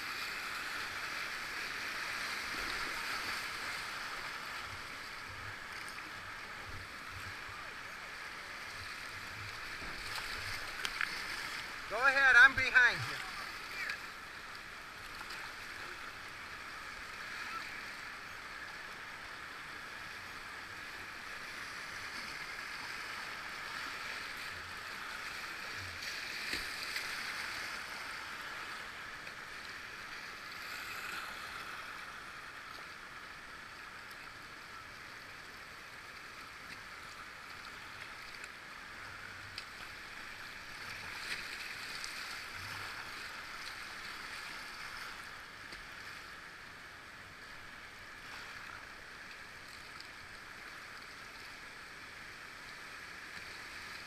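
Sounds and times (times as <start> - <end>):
whitewater rapids rushing: 11.6 - 13.9.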